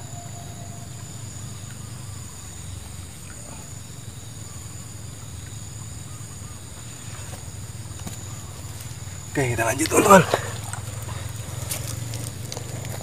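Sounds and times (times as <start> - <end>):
high-pitched whine: 0.0 - 1.7
faint chirps: 0.0 - 11.7.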